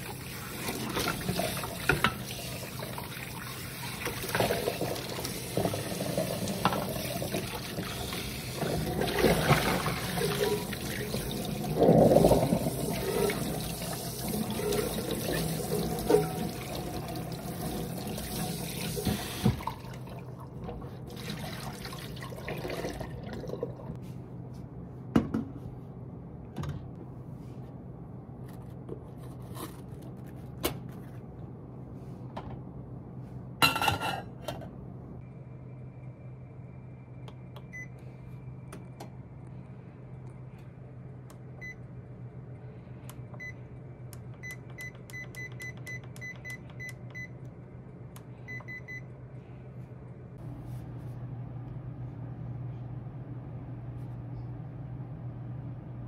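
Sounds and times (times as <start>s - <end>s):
water running: 0.0s - 24.0s.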